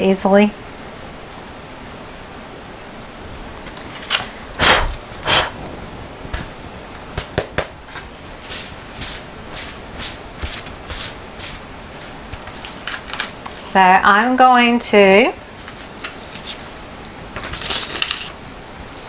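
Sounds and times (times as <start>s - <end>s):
paper rustling and sliding: 3.7s - 5.5s, 7.9s - 13.6s, 15.5s - 16.8s, 17.4s - 19.0s
tissue brushing across paper: 7.9s - 13.2s.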